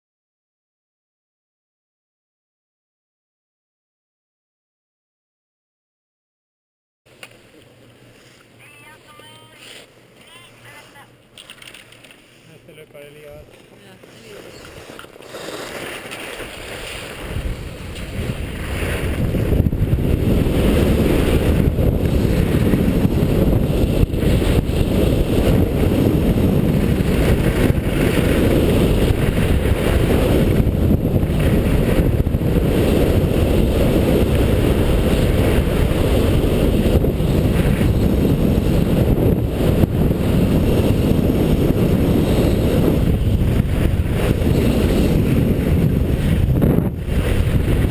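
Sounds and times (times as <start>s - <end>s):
skis running on snow: 9.1s - 47.9s
wind rushing over camera: 14.4s - 47.9s.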